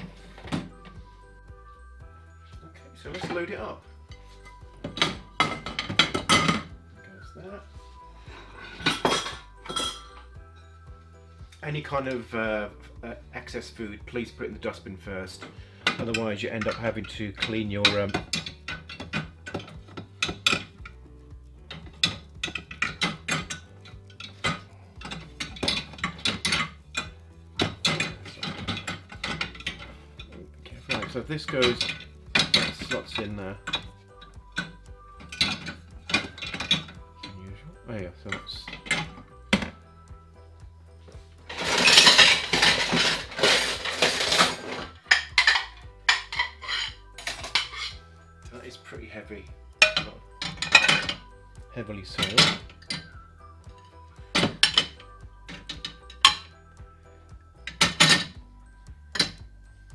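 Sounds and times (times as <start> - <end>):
crockery and cutlery clattering: 3.0 - 6.8, 8.2 - 10.4, 13.5 - 21.0, 21.6 - 37.4, 38.0 - 39.8, 41.5 - 48.7, 49.7 - 56.6, 57.6 - 58.4, 59.1 - 59.5
ceramic plates clinking: 4.2 - 6.8, 8.2 - 10.3, 15.4 - 20.9, 21.7 - 37.4, 38.3 - 39.8, 41.5 - 48.0, 49.8 - 51.3, 52.1 - 53.2, 54.3 - 56.5, 57.6 - 58.4
wire dish rack rattling: 4.8 - 6.7, 15.4 - 21.0, 21.7 - 33.9, 34.6 - 37.4, 38.3 - 39.8, 41.5 - 48.0, 49.8 - 51.3, 52.1 - 53.2, 54.3 - 56.5, 57.6 - 58.4.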